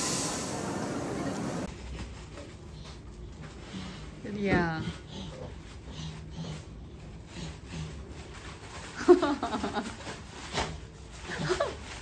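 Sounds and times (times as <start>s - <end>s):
tissue paper rustling: 7.5s - 12.0s.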